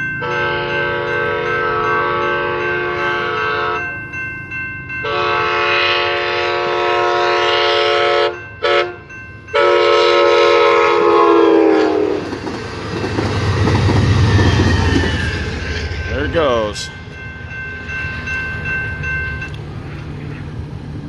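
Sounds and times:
locomotive horn blasts: 0:00.2 - 0:03.8, 0:05.0 - 0:12.3.

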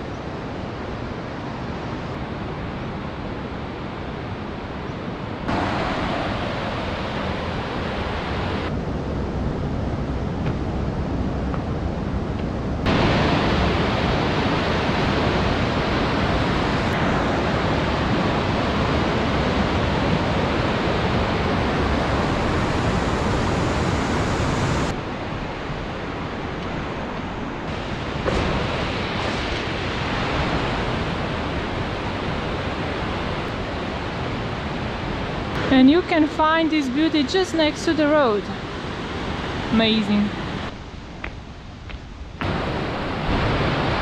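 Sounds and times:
river rushing through gorge: 0:00.2 - 0:08.8, 0:12.8 - 0:40.8, 0:42.4 - 0:44.0.

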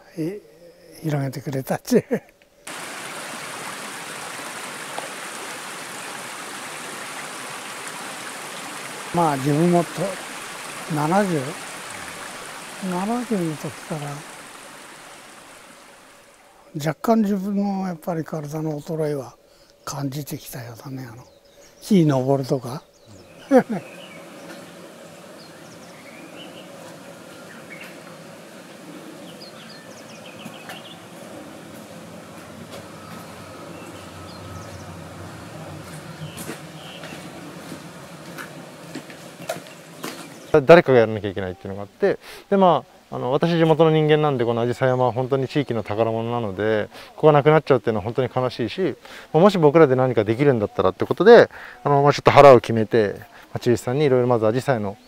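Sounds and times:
steady background hush: 0:02.0 - 0:50.3
small birds chirping: 0:02.6 - 0:16.9, 0:19.5 - 0:40.7
stream running over rocks: 0:02.7 - 0:16.7, 0:22.0 - 0:50.6.

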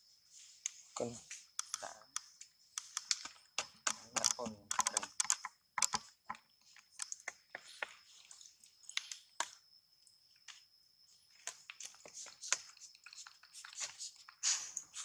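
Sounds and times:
dry clicks and crackles: 0:01.6 - 0:09.6.

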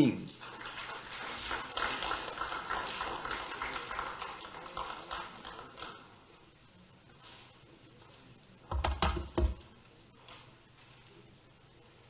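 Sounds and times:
footsteps and shuffling: 0:07.1 - 0:08.4.

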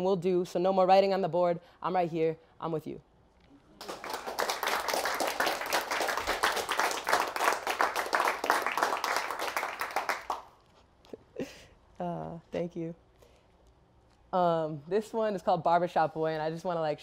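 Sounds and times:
audience applause: 0:03.8 - 0:10.5.

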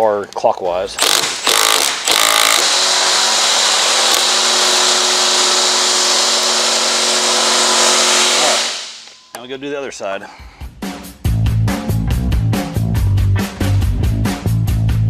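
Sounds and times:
impact driver hammering a bolt: 0:01.0 - 0:09.2.

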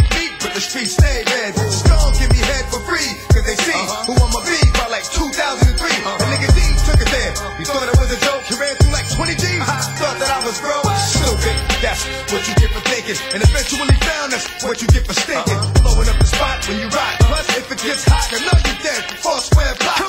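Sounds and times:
rapping over a beat: 0:00.0 - 0:20.0
booming kick drums and bass: 0:01.0 - 0:03.6, 0:04.2 - 0:08.2, 0:08.8 - 0:10.0, 0:10.9 - 0:12.8, 0:13.4 - 0:14.1, 0:14.9 - 0:17.5.

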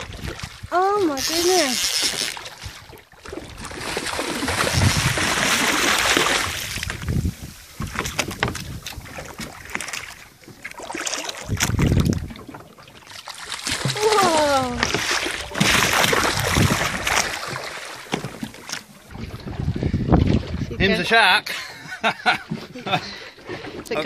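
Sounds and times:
wind buffeting microphone: 0:00.0 - 0:01.0, 0:02.6 - 0:09.8, 0:11.4 - 0:12.6, 0:13.9 - 0:17.5, 0:19.1 - 0:21.3
water splashing: 0:00.0 - 0:24.0.

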